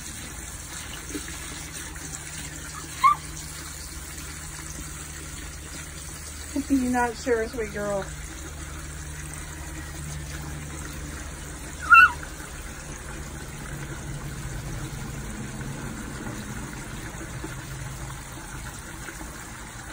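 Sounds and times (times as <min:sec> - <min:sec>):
water trickling into a plastic jug: 0:00.0 - 0:19.9
high-pitched squeak: 0:11.8 - 0:12.2.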